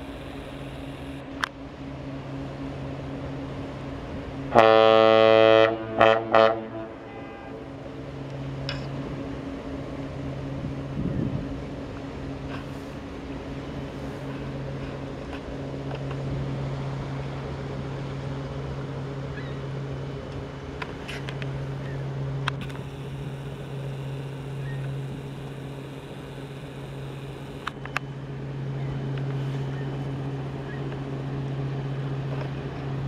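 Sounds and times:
ship low drone: 0.0 - 33.0
ship's horn blasts: 2.0 - 11.5.

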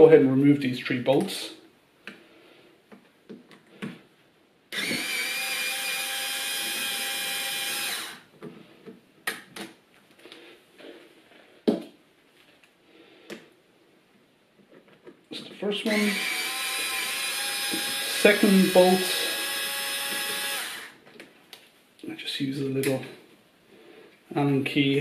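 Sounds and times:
cordless power screwdriver running: 4.7 - 8.2, 15.9 - 21.0.

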